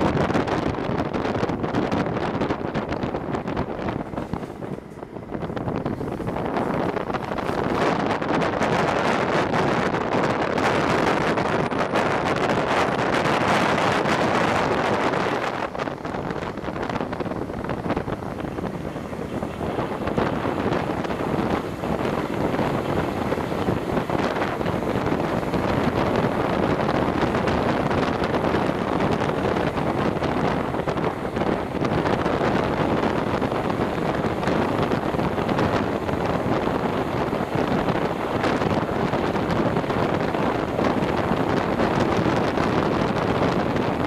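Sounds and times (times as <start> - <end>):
train running on rails: 0.0 - 44.0
wind buffeting microphone: 0.0 - 44.0.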